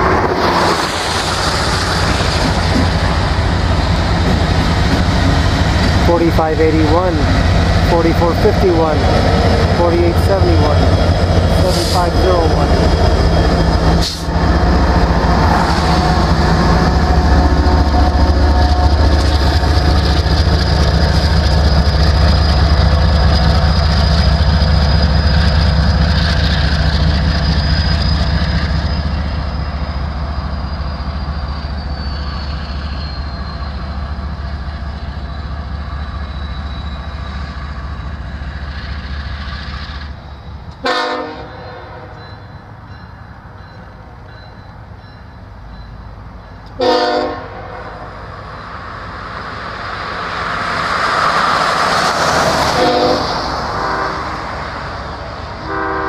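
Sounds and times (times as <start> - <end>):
freight train rumbling past: 0.0 - 56.0
train horn: 40.8 - 42.2, 46.8 - 48.0, 52.7 - 54.5, 55.6 - 56.0.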